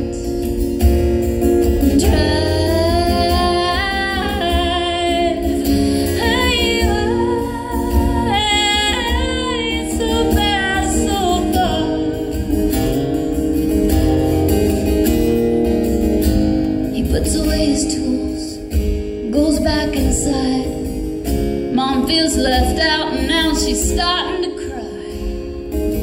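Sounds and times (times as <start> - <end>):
strummed acoustic guitar: 0.0 - 26.0
woman singing: 1.6 - 12.6, 16.9 - 21.1, 21.7 - 25.6.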